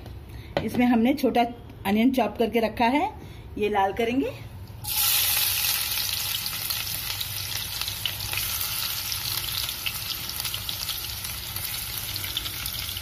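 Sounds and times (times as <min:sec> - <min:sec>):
onion sizzling in hot oil: 0:04.8 - 0:13.0.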